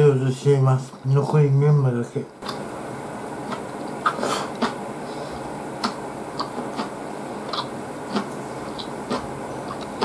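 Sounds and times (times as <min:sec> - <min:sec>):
steady background hiss: 0:00.0 - 0:10.0
wet chewing mouth clicks: 0:03.4 - 0:04.8, 0:05.8 - 0:10.0.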